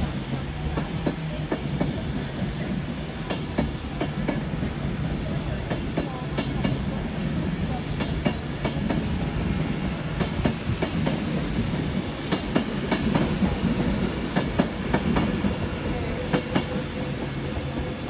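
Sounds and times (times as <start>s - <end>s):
train rumbling on track: 0.0s - 18.0s.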